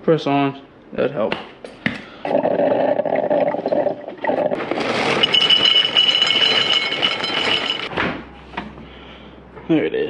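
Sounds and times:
hard contents rattling inside: 0:04.6 - 0:07.9.

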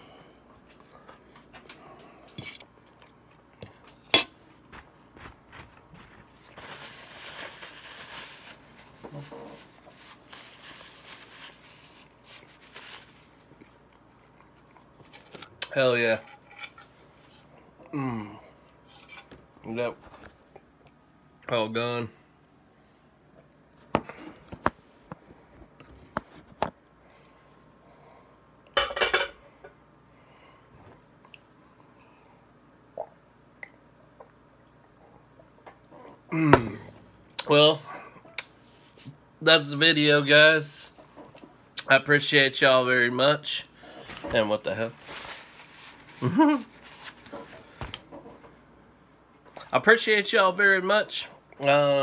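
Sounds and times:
paper towel rustling: 0:04.6 - 0:13.4, 0:43.9 - 0:48.0.

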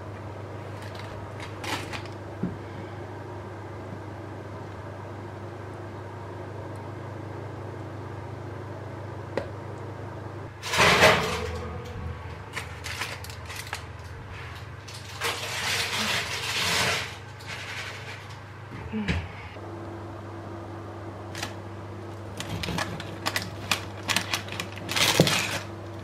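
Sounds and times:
low appliance hum: 0:00.0 - 0:26.0.

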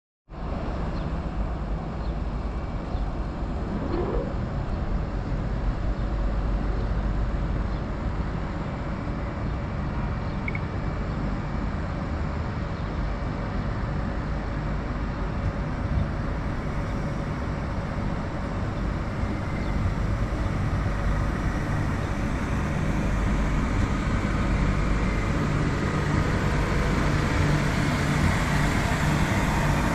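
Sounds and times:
train rumble and hum: 0:00.4 - 0:29.9
rising whistle-like glide: 0:03.7 - 0:04.4.

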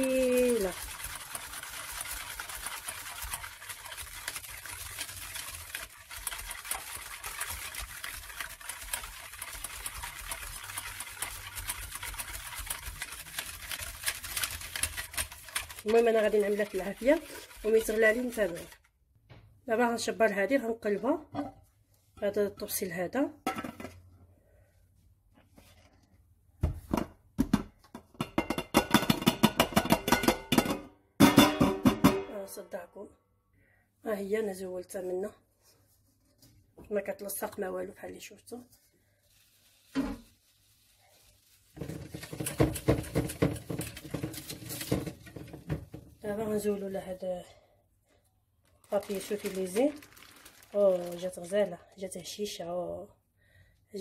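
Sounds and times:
wire whisk scraping a metal pan: 0:00.0 - 0:18.9, 0:41.8 - 0:45.5
metal cake pan knocking on glass: 0:28.2 - 0:32.3.

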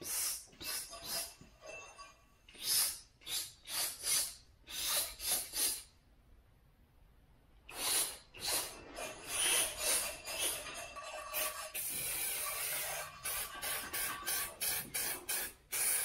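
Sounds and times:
aerosol spray can hissing: 0:11.8 - 0:16.0.

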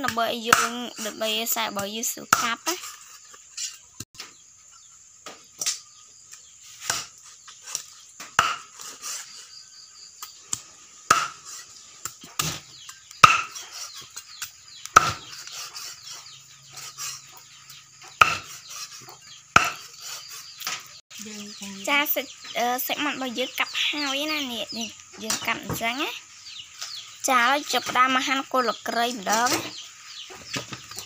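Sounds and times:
cleaver chopping on wooden block: 0:07.7 - 0:08.9, 0:11.1 - 0:11.4, 0:12.4 - 0:13.6, 0:14.9 - 0:15.4, 0:18.2 - 0:18.6, 0:19.5 - 0:19.9.

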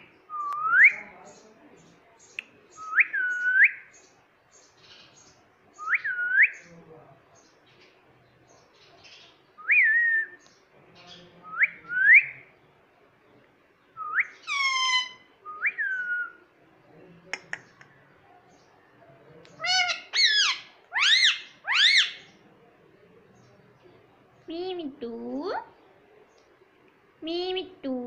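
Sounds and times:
parakeet whistled calls: 0:14.0 - 0:16.3, 0:19.7 - 0:22.3.

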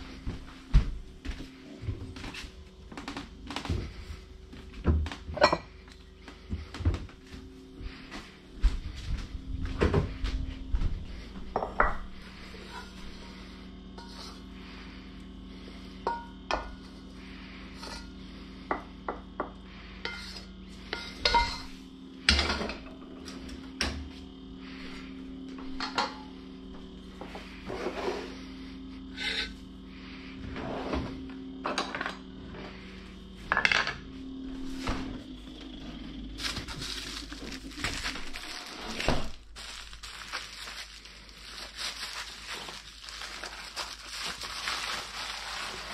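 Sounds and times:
steady low hum: 0:00.0 - 0:45.9
utensils clinking and scraping: 0:20.1 - 0:21.7.

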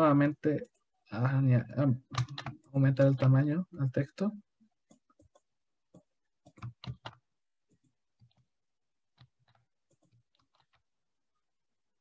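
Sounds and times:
mouse and keyboard clicks: 0:04.8 - 0:08.5.

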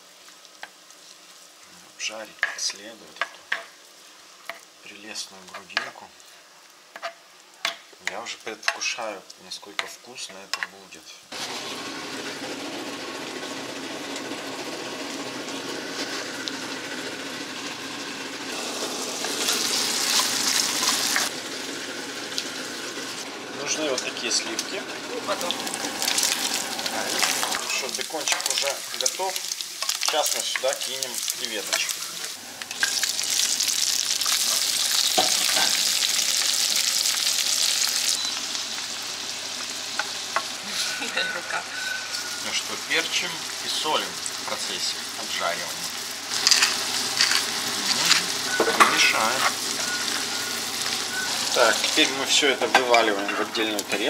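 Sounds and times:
pork sizzling in a frying pan: 0:00.0 - 0:54.0
spatula scraping pan: 0:40.6 - 0:42.7, 0:46.3 - 0:53.5.

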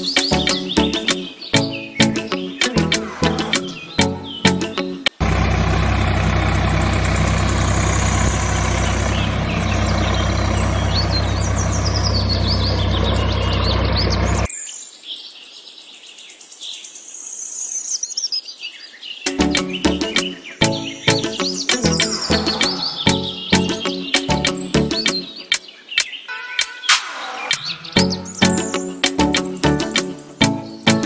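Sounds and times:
music: 0:00.0 - 0:05.2, 0:19.3 - 0:31.0
birds chirping: 0:00.0 - 0:31.0
tractor engine idling: 0:04.0 - 0:14.5, 0:21.8 - 0:23.8.

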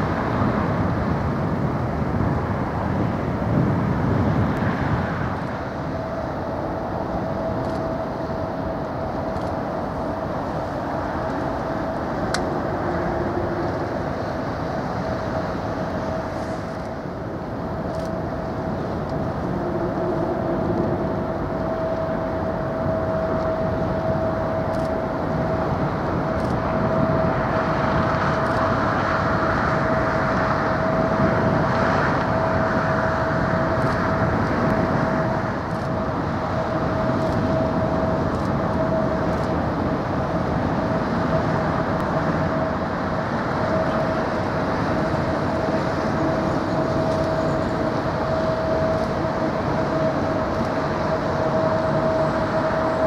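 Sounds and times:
mechanical drone with hum: 0:00.0 - 0:53.0.

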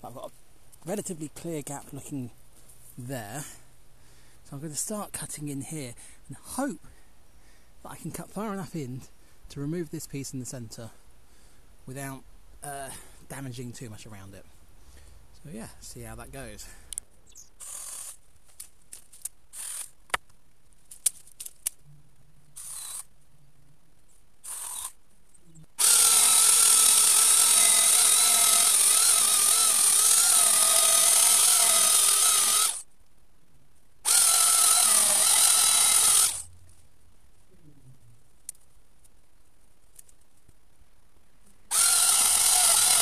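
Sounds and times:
electric chainsaw cutting wood: 0:22.6 - 0:23.0, 0:24.4 - 0:25.0, 0:25.8 - 0:32.8, 0:34.1 - 0:36.5, 0:41.7 - 0:43.0.

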